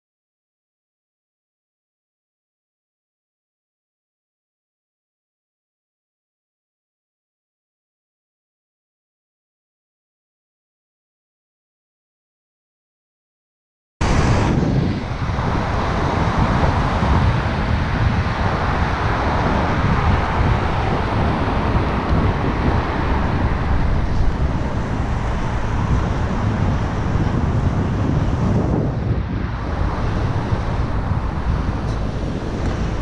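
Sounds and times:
road traffic: 14.0s - 33.0s
wind rumbling on microphone: 14.0s - 33.0s.

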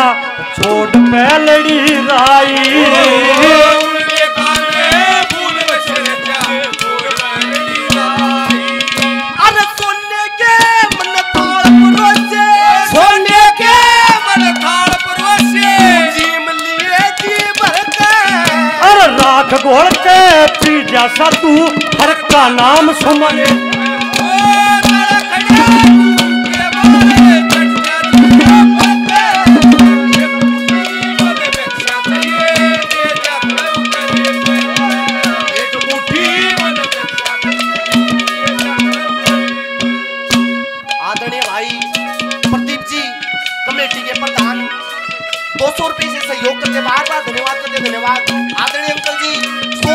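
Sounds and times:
hand drums beating fast: 0.0s - 49.9s
ornamented melody line: 0.0s - 49.9s.

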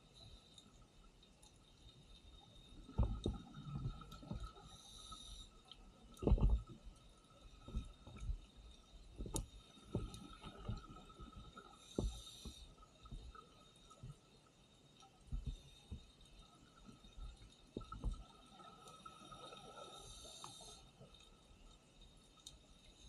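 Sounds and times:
faint steady whine: 0.0s - 23.0s
regulator inhale hiss: 4.6s - 5.7s, 11.7s - 13.0s, 18.8s - 21.2s.

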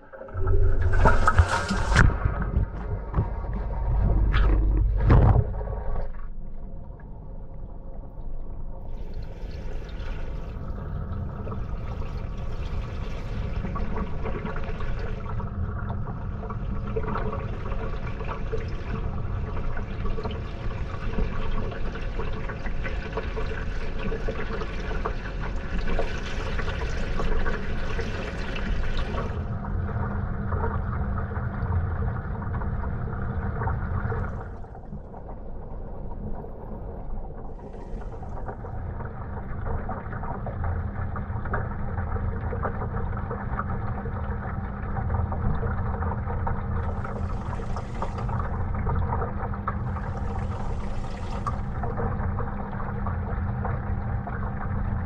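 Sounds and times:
water sloshing in washing machine: 0.0s - 6.2s, 9.0s - 35.3s, 37.5s - 55.0s
steady low hum: 28.6s - 55.0s.

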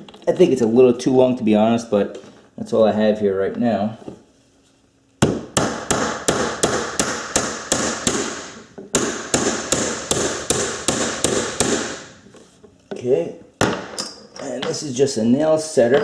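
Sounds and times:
hammer striking nail into wood: 5.2s - 12.1s.

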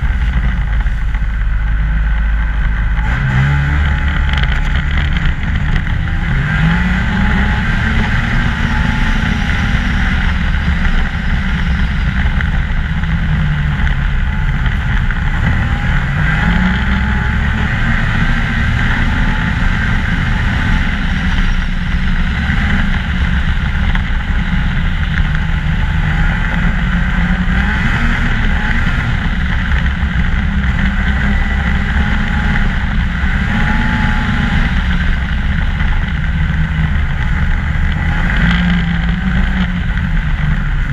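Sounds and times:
snowmobile engine running: 0.0s - 40.9s.

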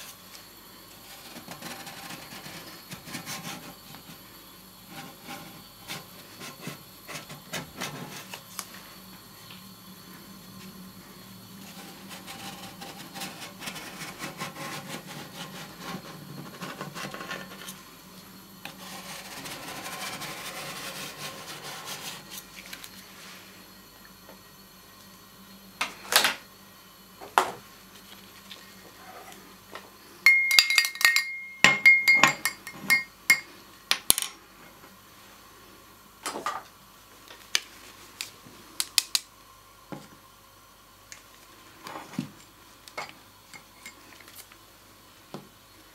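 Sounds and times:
metal tools clinking on plate: 30.3s - 33.4s.

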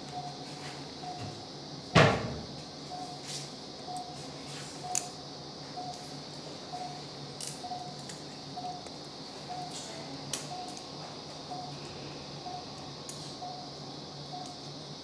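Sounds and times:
patient monitor beeping: 0.0s - 1.4s, 2.8s - 3.2s, 3.8s - 8.8s, 9.4s - 9.8s, 10.4s - 14.7s.

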